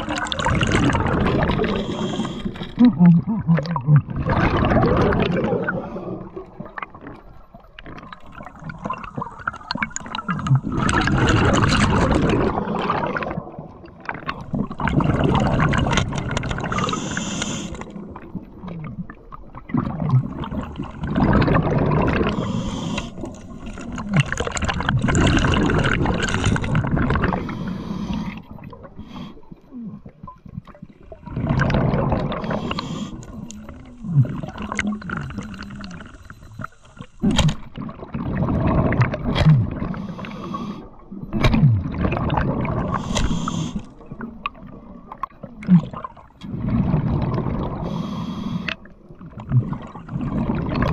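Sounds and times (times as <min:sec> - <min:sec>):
bubbles gurgling: 0:00.0 - 0:48.0, 0:48.8 - 0:50.9
diver breathing through regulator: 0:01.5 - 0:02.8, 0:16.6 - 0:18.0, 0:22.2 - 0:24.0, 0:26.2 - 0:29.6, 0:32.4 - 0:37.2, 0:39.8 - 0:41.0, 0:42.9 - 0:44.0, 0:47.8 - 0:48.9.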